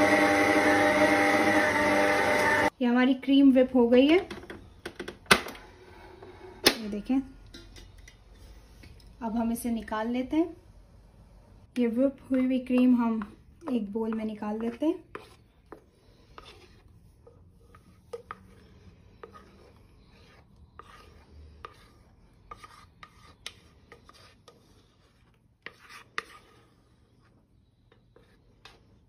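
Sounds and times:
spatula scraping bowl: 0.0 - 2.7, 12.3 - 29.0.

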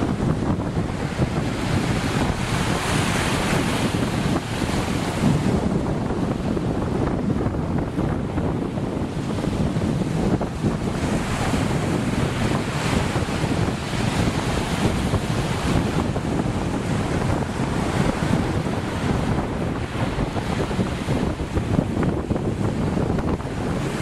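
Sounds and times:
sea waves washing: 0.0 - 24.0
wind buffeting microphone: 0.0 - 24.0.

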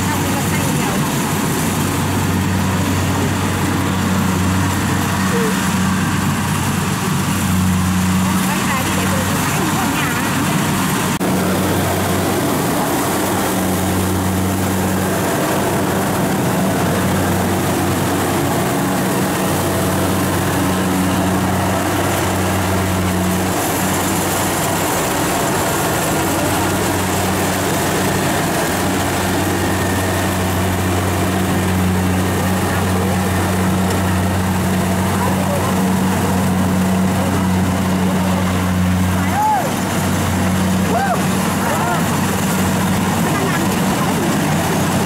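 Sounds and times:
diesel engine droning: 0.0 - 45.0
harvester machinery clatter: 0.0 - 45.0.

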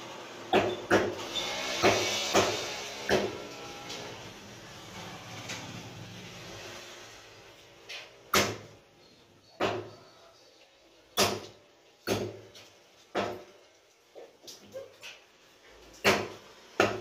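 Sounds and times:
cleaver chopping on wooden block: 0.5 - 1.2, 1.8 - 3.4, 9.6 - 9.9, 11.2 - 12.4, 16.0 - 17.0.

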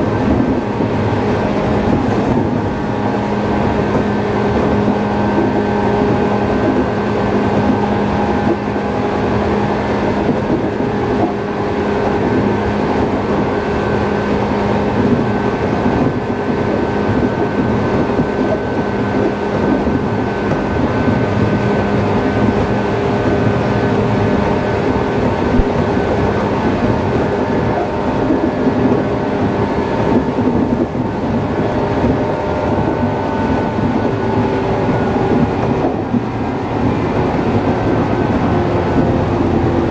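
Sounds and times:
train wheels rumbling on rails: 0.0 - 39.9
wheel flat spot knocking: 25.5 - 25.9.

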